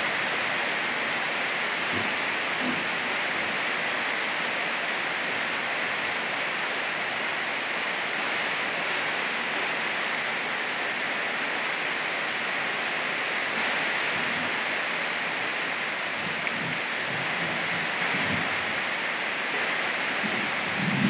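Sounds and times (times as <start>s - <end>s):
heavy rain pouring: 0.0s - 21.0s.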